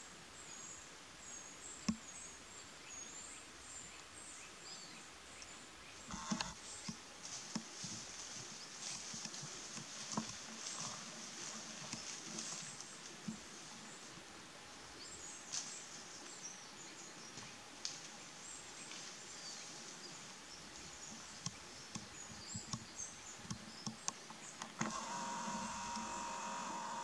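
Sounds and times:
zoom motor whine: 6.1 - 6.6, 24.8 - 27.0.

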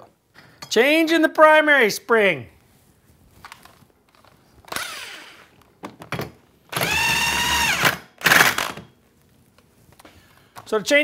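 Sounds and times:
cordless drill motor running: 4.7 - 5.5, 6.7 - 8.0.

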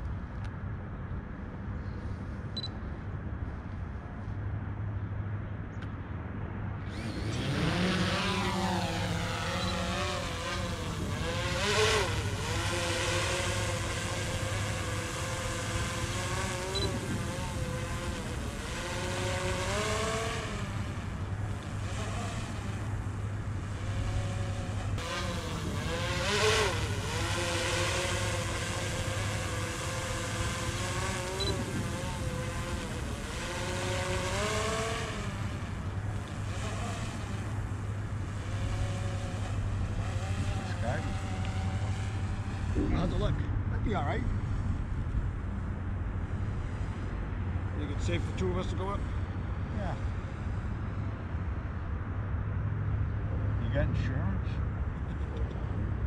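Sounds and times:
drone propellers whining: 6.8 - 51.4.

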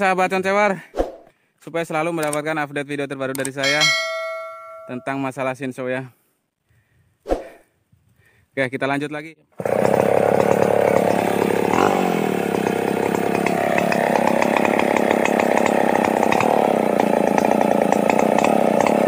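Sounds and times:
chainsaw cutting wood: 9.6 - 19.0.

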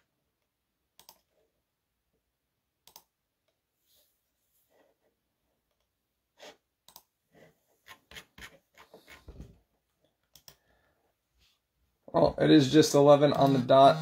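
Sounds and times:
faint keyboard typing: 1.0 - 1.5, 2.8 - 3.1, 10.0 - 10.7.

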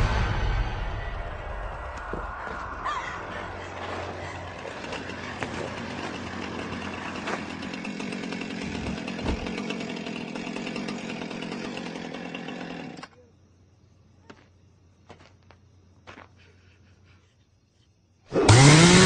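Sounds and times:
loud harsh buzzing: 4.4 - 13.0, 18.4 - 19.0.

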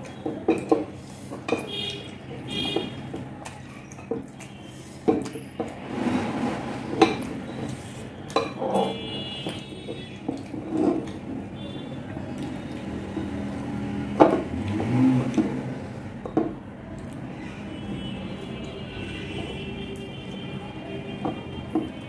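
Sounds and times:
clinks and taps on glass plates: 8.3 - 8.9.

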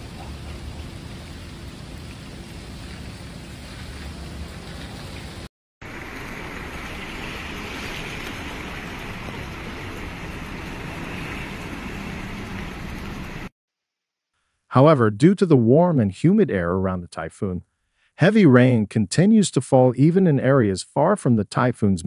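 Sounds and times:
floodwater rushing: 0.0 - 13.5
heavy rain on pavement: 0.0 - 13.5.

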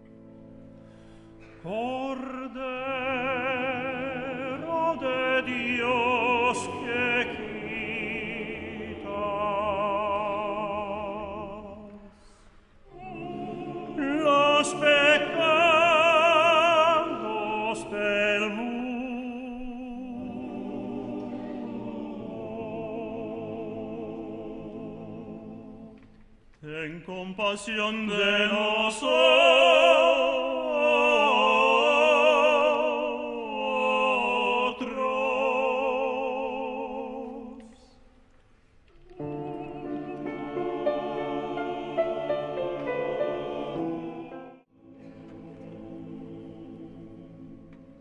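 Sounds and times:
tenor singing operatic vibrato: 12.9 - 25.9.

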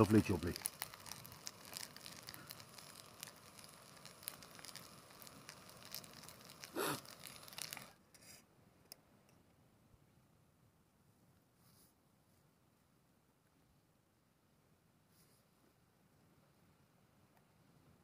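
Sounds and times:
food sizzling in a pot: 0.0 - 7.9.

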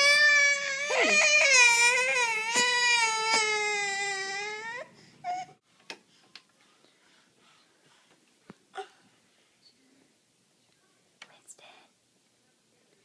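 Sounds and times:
baby crying: 0.0 - 5.6.

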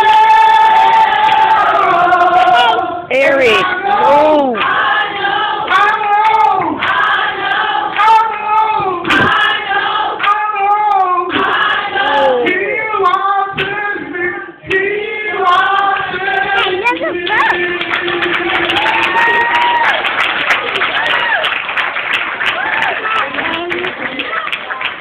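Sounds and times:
amplified gospel singing: 0.0 - 20.0.

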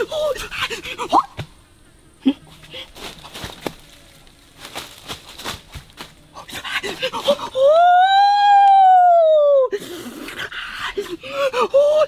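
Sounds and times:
crackling and rustling: 2.4 - 6.4.

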